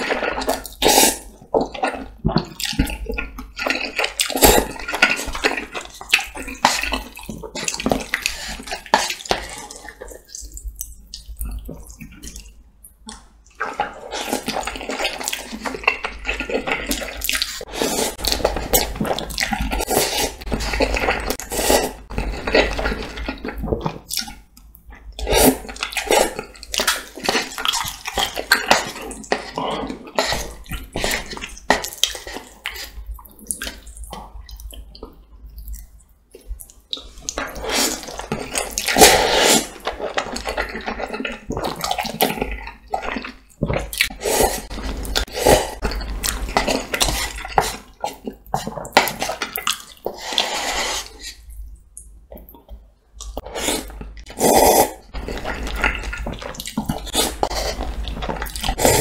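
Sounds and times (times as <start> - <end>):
noodles slurping: 13.1 - 24.4, 36.9 - 51.5, 53.3 - 59.0
wet smacking chews: 55.1 - 59.0.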